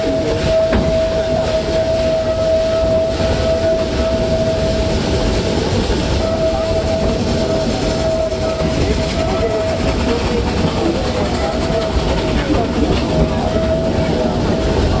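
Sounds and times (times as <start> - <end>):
steady high tone: 0.0 - 10.2
steam locomotive rumble: 0.0 - 15.0.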